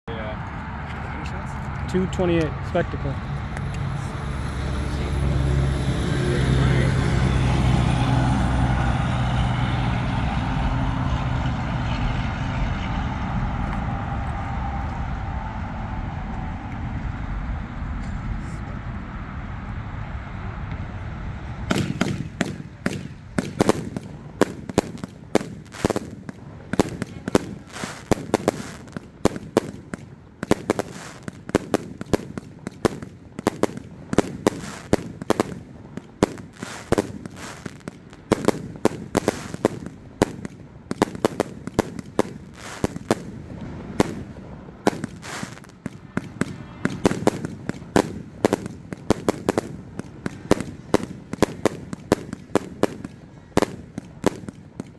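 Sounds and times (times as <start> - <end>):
fireworks bangs and pops: 21.7 - 54.9.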